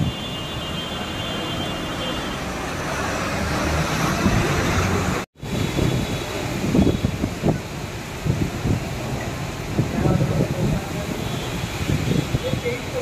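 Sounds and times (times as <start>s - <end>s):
heavy rain pouring on street: 0.0s - 13.0s
traffic rumbling on wet road: 0.0s - 13.0s.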